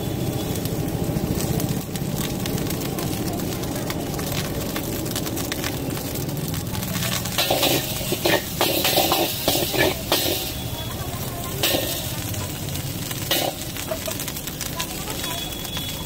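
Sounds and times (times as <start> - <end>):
metal ladle scraping a wok: 7.3 - 10.7, 11.5 - 12.3, 13.1 - 13.9.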